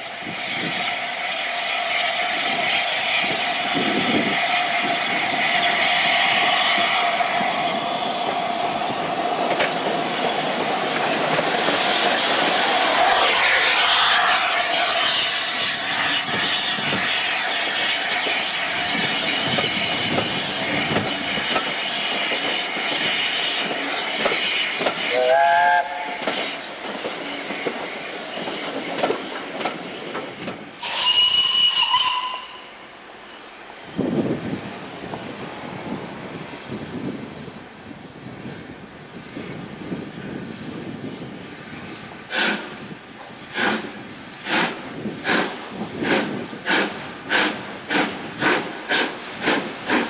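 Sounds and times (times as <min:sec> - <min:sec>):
train rumble and wheel clatter: 0:00.0 - 0:50.0
steam locomotive whistle: 0:25.1 - 0:26.3, 0:30.8 - 0:32.9
rising whistle-like call: 0:30.8 - 0:33.4.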